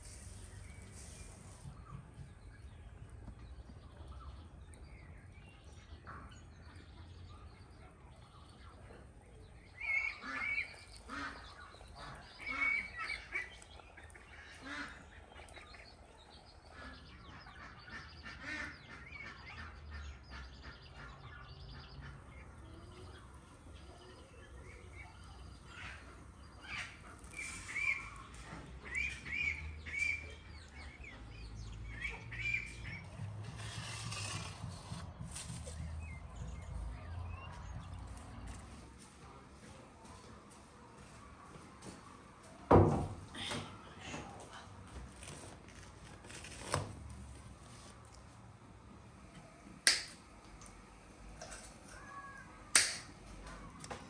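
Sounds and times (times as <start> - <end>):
fowl calling: 9.8 - 15.8.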